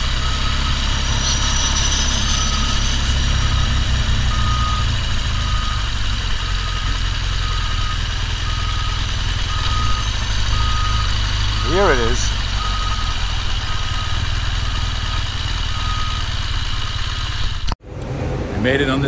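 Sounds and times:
reversing alarm beeping: 0:00.0 - 0:17.5
motorcycle engine running: 0:02.9 - 0:17.8.

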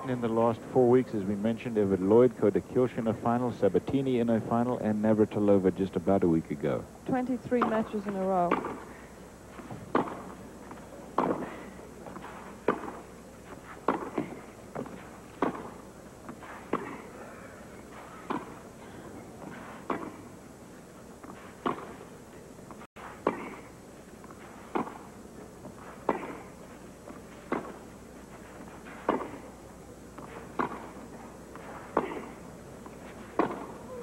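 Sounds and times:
tennis ball struck by rackets: 0:07.6 - 0:08.9, 0:09.7 - 0:10.4, 0:11.1 - 0:11.6, 0:12.2 - 0:13.0, 0:13.8 - 0:17.1, 0:18.2 - 0:18.6, 0:19.6 - 0:20.2, 0:21.3 - 0:22.0, 0:24.3 - 0:25.2, 0:25.8 - 0:26.5, 0:27.4 - 0:27.9, 0:28.9 - 0:29.5, 0:30.2 - 0:33.8.

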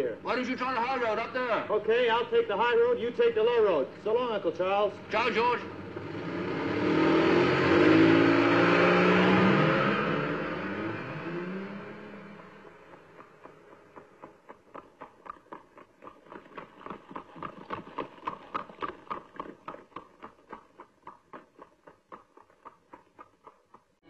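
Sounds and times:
hooves clip-clopping: 0:12.4 - 0:24.0.

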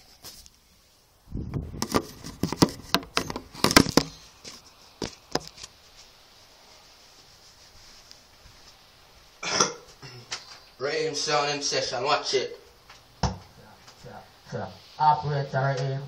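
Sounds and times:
faint hiss: 0:00.0 - 0:16.0
phone handling rustling and rubbing: 0:01.8 - 0:05.8.

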